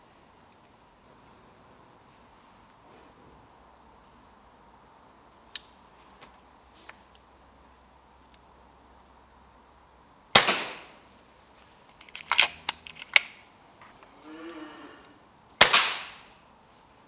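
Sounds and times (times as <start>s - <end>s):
air rifle shots: 10.3s - 11.0s, 15.6s - 16.3s
metallic clicks of rifle action: 11.9s - 13.5s.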